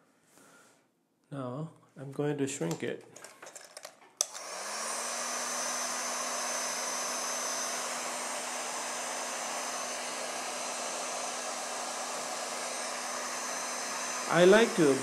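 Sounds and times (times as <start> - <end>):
heat gun fan blowing: 4.2 - 15.0.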